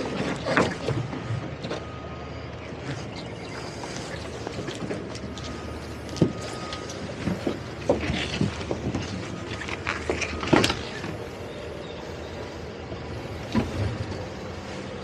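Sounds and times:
outboard engines idling: 0.0 - 15.0
knocks and thumps on boat deck: 13.4 - 14.2.

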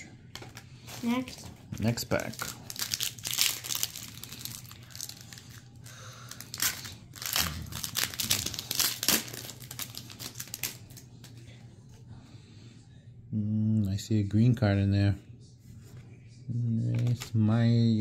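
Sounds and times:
foil wrapper crinkling and tearing: 0.4 - 11.4.

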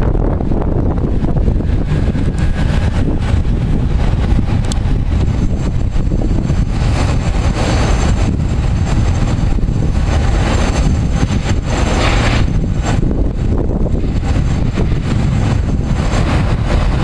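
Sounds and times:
wind rumble on microphone: 0.0 - 17.0
jet engine hiss: 0.1 - 17.0.

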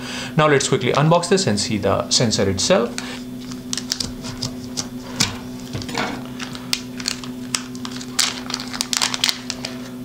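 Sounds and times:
steady low hum: 0.0 - 10.0
plastic bag crinkling: 3.0 - 10.0.

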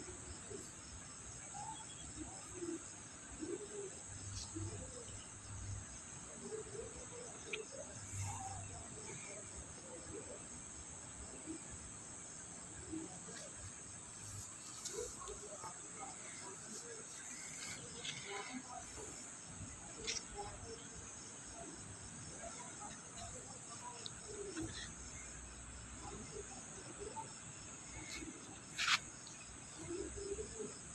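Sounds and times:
crickets chirring: 0.0 - 30.9
faint clicks and rustles: 13.2 - 20.9.

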